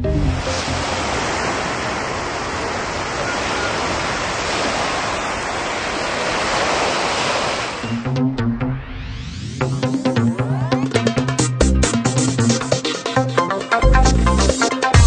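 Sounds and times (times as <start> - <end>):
surf breaking on beach: 0.3 - 8.0.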